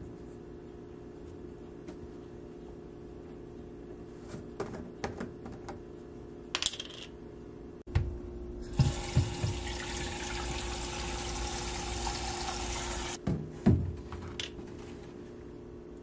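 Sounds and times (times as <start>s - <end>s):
faucet running into pitcher: 8.7s - 13.2s.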